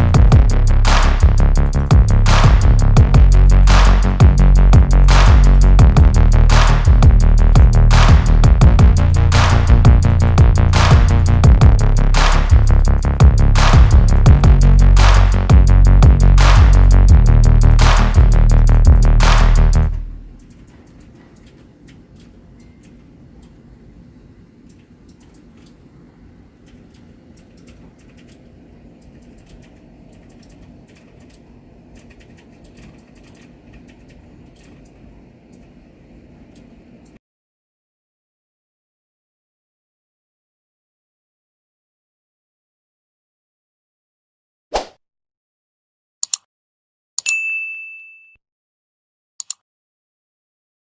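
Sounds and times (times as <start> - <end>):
steady low hum: 0.0 - 37.2
keyboard typing clicks: 20.4 - 23.6, 24.6 - 25.8, 26.6 - 35.7, 46.2 - 46.5, 49.4 - 49.6
mouse clicks: 46.2 - 46.5, 49.4 - 49.6
bell ding: 47.2 - 48.4.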